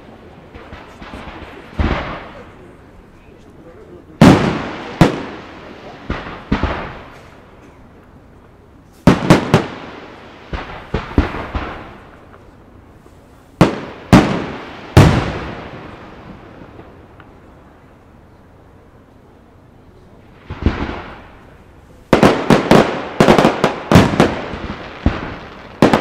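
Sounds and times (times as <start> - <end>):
small firework pops: 0.5 - 2.5, 16.6 - 17.5
firework shells bursting: 20.4 - 26.0.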